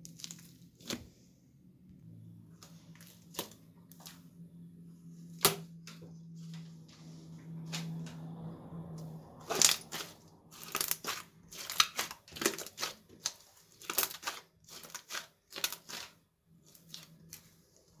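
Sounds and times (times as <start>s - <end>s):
slime squishing and popping: 0.0s - 1.1s, 9.4s - 17.4s.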